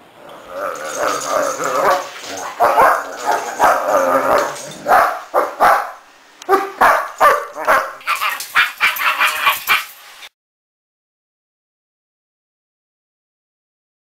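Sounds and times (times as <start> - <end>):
dog barking: 2.4 - 3.9, 4.8 - 9.9.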